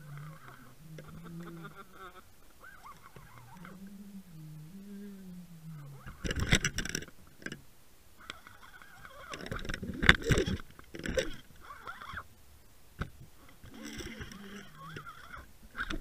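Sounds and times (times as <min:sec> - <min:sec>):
low wavering hum: 0:00.0 - 0:09.1.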